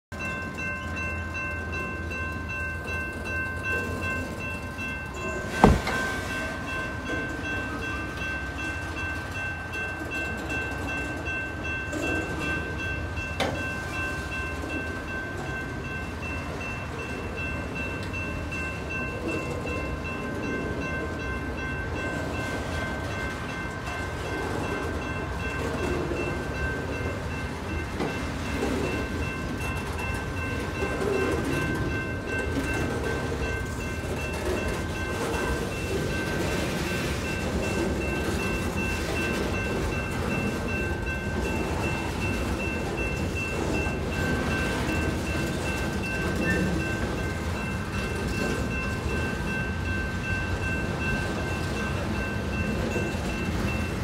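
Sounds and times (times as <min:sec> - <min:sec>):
crossing warning bell ringing: 0:00.1 - 0:54.0
train wheels rumbling on rail: 0:00.1 - 0:54.0
sharp bang from train cars: 0:05.5 - 0:06.2.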